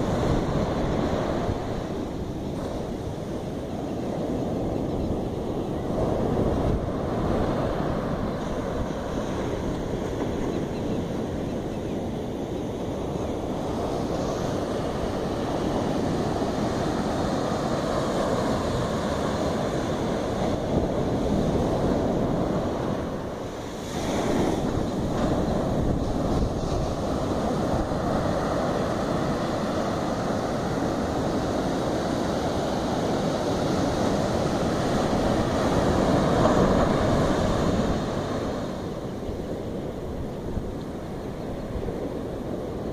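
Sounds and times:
surf breaking on sandy beach: 13.1 - 40.1.

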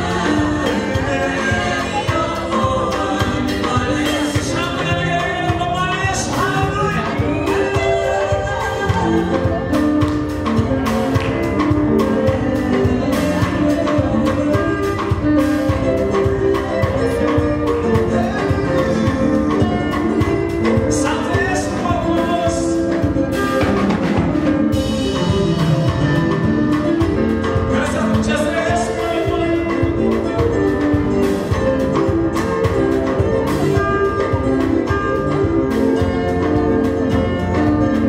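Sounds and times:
people singing into microphones: 0.0 - 23.8
drum kit beat: 0.0 - 38.0
gospel band playing: 0.0 - 38.0.

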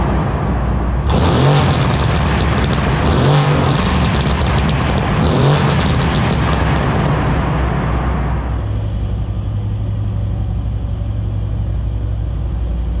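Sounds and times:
car engine revving: 1.0 - 7.4
exhaust crackling: 1.0 - 7.4.

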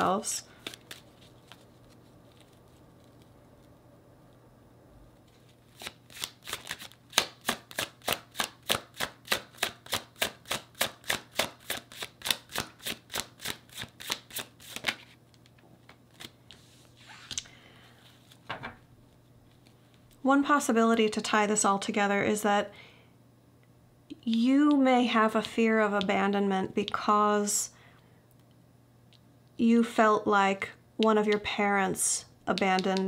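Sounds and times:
cards being shuffled: 0.5 - 3.7, 5.2 - 17.5
cards rustling: 0.5 - 3.7, 5.3 - 9.1, 11.1 - 17.4.

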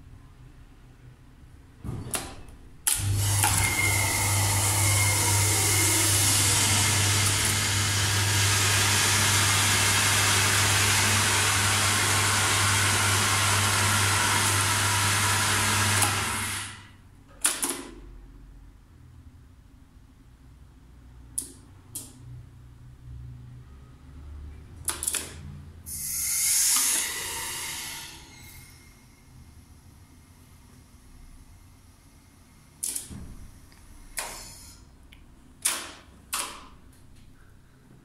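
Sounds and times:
hydraulic pump motor running: 2.9 - 16.9.

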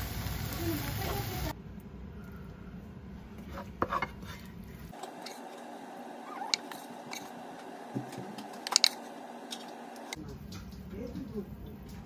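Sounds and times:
wooden spatula scraping a pan: 3.4 - 9.2.

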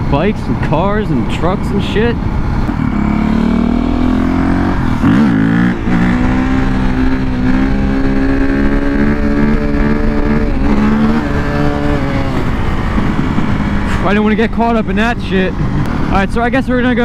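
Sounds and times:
motorcycle engine revving: 0.0 - 17.0
wind rush on microphone: 0.0 - 17.0.

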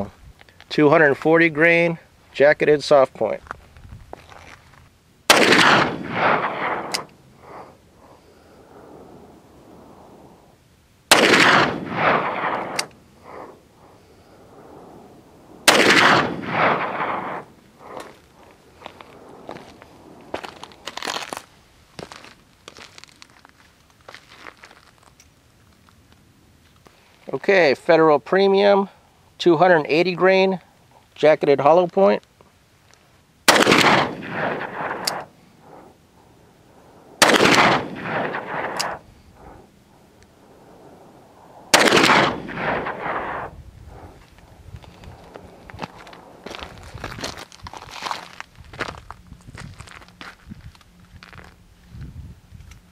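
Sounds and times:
rolling gunshot echo: 5.3 - 7.1, 11.1 - 13.6, 15.6 - 18.0, 33.5 - 35.9, 37.2 - 39.7, 41.7 - 44.1
revolver shots: 11.1 - 12.9, 15.7 - 17.5, 37.1 - 39.6, 41.7 - 43.5.

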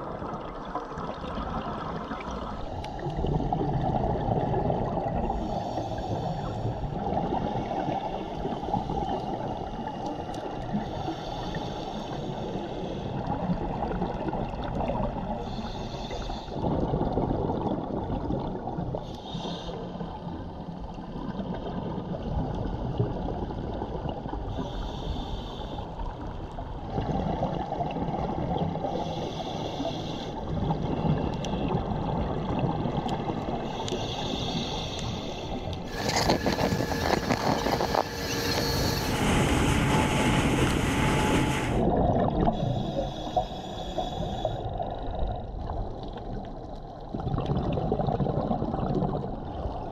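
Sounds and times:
regulator bubbles gurgling: 0.0 - 10.8, 16.5 - 19.1, 26.2 - 29.2, 30.4 - 49.9
underwater rush: 0.0 - 25.4, 26.0 - 49.9.

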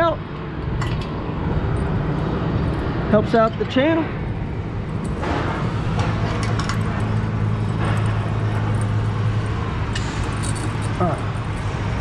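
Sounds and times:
low engine hum: 0.2 - 12.0
light metal clinks: 10.0 - 11.8.

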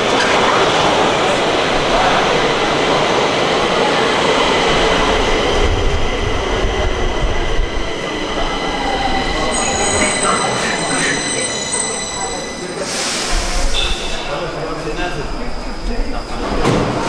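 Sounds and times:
metro train rumble: 0.0 - 17.0
high whining tones: 4.9 - 16.6.

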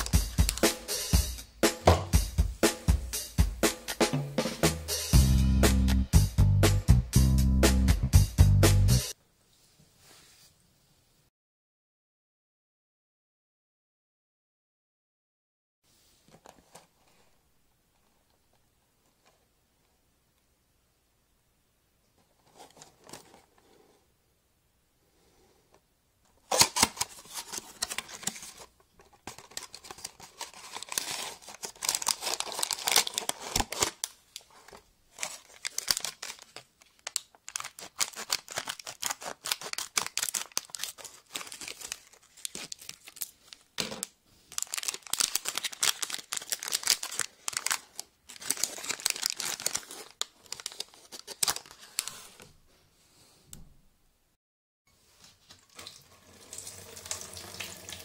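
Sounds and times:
foil packet crinkling: 0.0 - 0.7, 26.4 - 52.4
foil tearing: 26.5 - 28.7, 29.3 - 34.1, 35.2 - 43.4, 44.5 - 52.2.

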